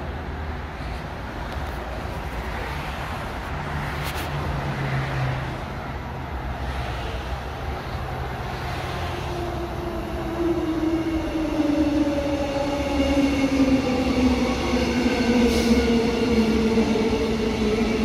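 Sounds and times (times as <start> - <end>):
road traffic rumble: 0.0 - 18.0
electric train approaching: 6.3 - 18.0.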